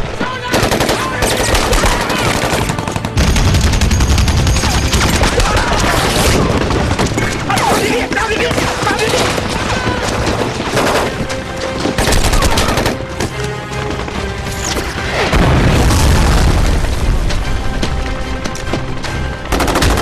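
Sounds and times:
dramatic film score music: 0.0s - 20.0s
deep explosion blast: 15.2s - 17.3s.

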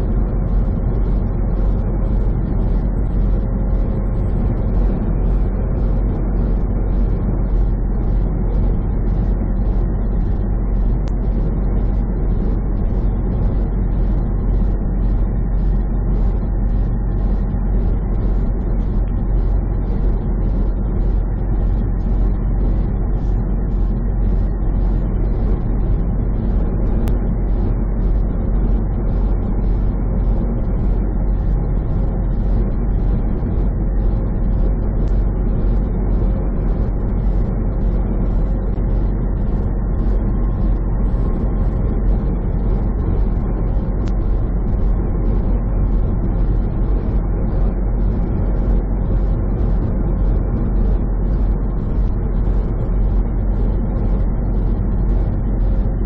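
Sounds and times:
truck engine drone: 0.0s - 56.0s.

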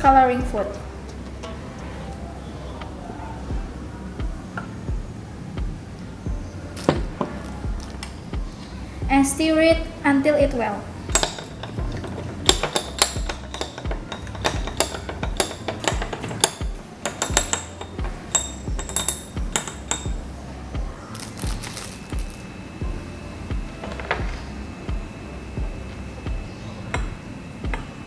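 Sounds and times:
background music: 0.0s - 28.0s
stirring rod clinking against glass: 11.1s - 20.2s.

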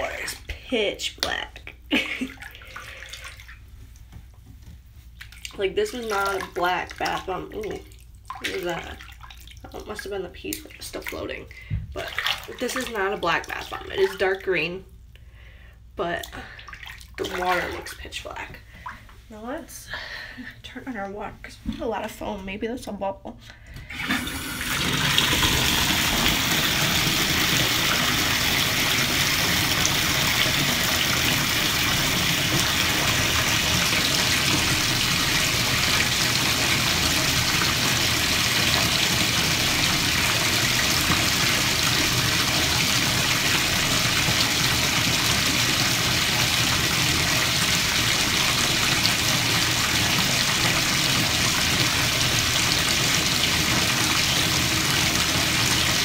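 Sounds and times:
water pouring into a bath: 2.0s - 3.6s, 5.2s - 14.5s, 16.3s - 18.0s, 23.9s - 56.0s.

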